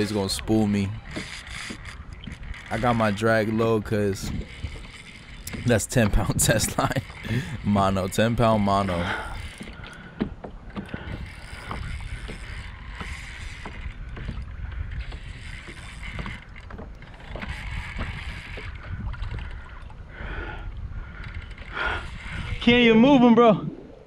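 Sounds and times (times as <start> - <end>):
water moving against kayak: 0.0 - 24.0
wind buffeting microphone: 0.0 - 24.0
sharp clicks and knocks: 9.5 - 19.4.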